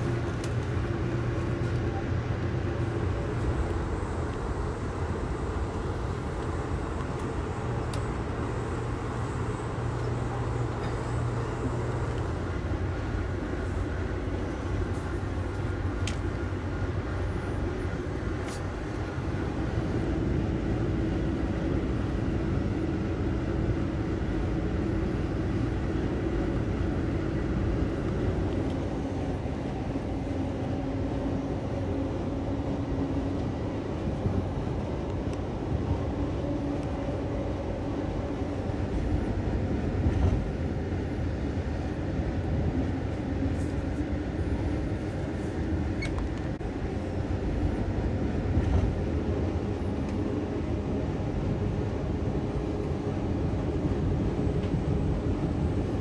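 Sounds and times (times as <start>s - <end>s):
train wheel and rail noise: 0.0s - 56.0s.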